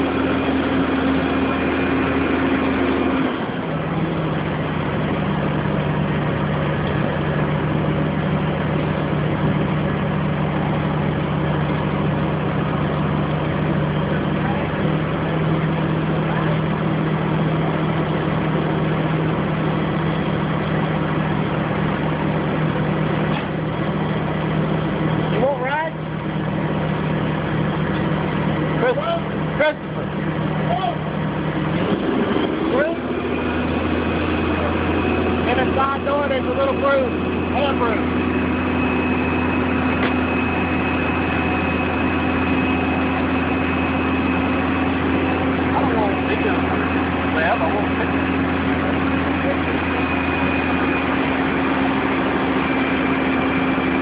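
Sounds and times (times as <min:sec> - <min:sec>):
crane engine idling: 0:00.0 - 0:54.0
heavy machinery drone: 0:00.0 - 0:54.0
thin high whine: 0:34.1 - 0:54.0.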